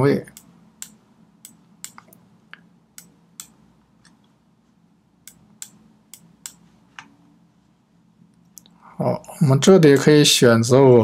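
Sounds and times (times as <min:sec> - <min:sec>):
computer mouse clicks: 0:03.0 - 0:04.2.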